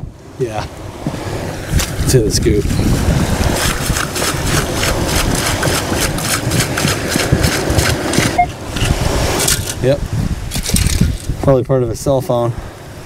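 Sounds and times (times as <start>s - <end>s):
wind rumble on microphone: 0.0s - 13.0s
sand rattling in metal scoop: 3.5s - 11.4s.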